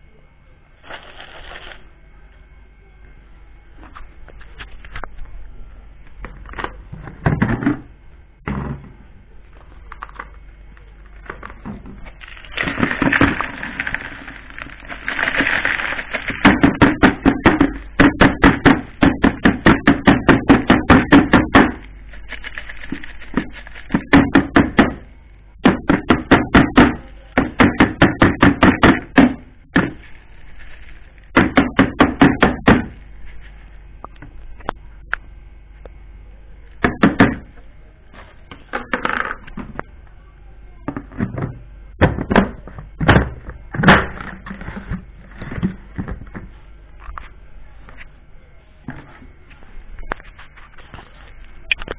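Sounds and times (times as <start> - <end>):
plastic basket rustling: 0.8 - 1.9, 9.6 - 18.2, 21.6 - 24.5, 29.6 - 31.5
basket knocking on plastic bowl: 7.0 - 9.0, 16.2 - 21.8, 23.3 - 30.1, 31.3 - 33.0, 36.8 - 37.5, 40.9 - 46.5.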